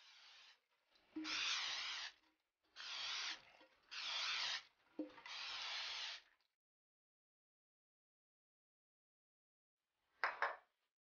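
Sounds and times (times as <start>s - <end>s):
aerosol spray hissing: 0.0s - 0.6s, 1.2s - 2.2s, 2.8s - 4.6s, 5.3s - 6.2s.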